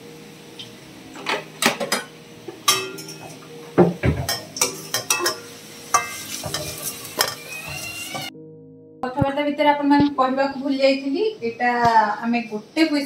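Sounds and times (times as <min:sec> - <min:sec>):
metal kitchenware clinking: 0:01.2 - 0:03.4, 0:04.1 - 0:07.6
spatula stirring in a metal pan: 0:04.3 - 0:08.2.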